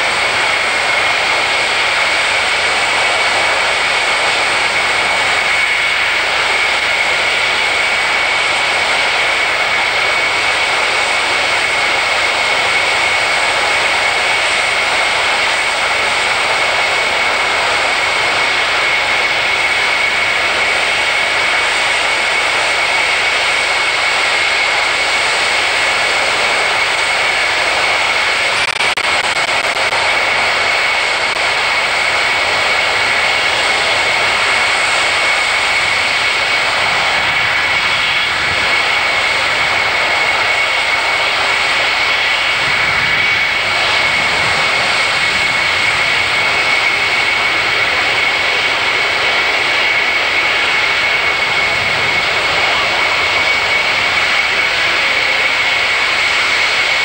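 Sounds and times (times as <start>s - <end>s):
jet engines with high whine: 0.0s - 57.0s.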